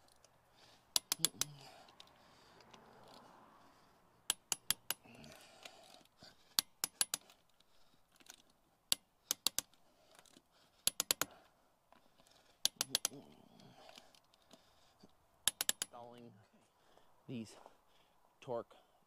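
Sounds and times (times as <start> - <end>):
torque wrench clicking: 0.9 - 2.1, 4.3 - 11.3, 12.6 - 13.2, 15.4 - 16.0.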